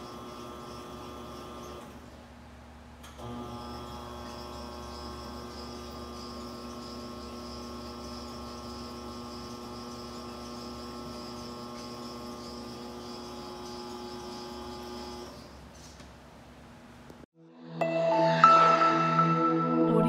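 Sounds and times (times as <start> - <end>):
electric motor humming and whining: 3.2 - 15.4.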